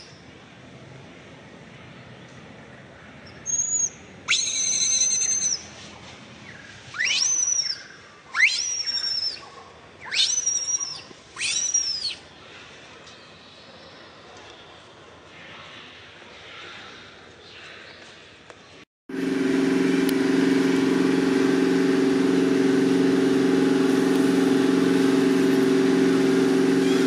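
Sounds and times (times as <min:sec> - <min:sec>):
baby monkey high-pitched calls: 0:03.4 - 0:05.6, 0:07.0 - 0:09.4, 0:10.0 - 0:12.2.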